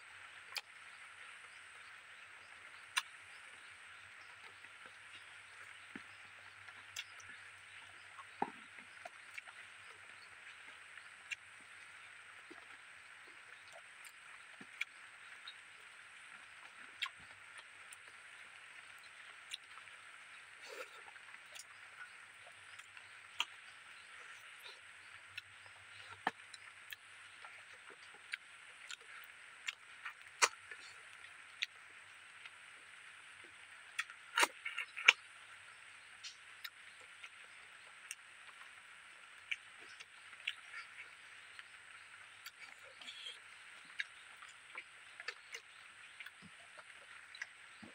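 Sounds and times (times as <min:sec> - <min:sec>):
chewing and lip-smacking: 0:05.6 - 0:12.8, 0:16.6 - 0:18.4, 0:19.0 - 0:19.9, 0:20.6 - 0:24.8, 0:25.4 - 0:31.8, 0:34.0 - 0:35.2, 0:36.2 - 0:38.8, 0:39.4 - 0:41.7, 0:42.3 - 0:47.9.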